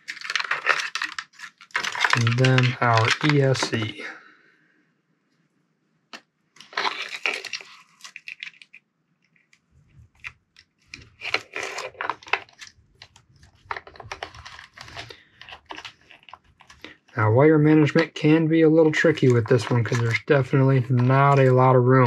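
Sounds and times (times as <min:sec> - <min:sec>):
plastic parts clicking and rustling: 0:00.0 - 0:03.9, 0:06.6 - 0:17.1.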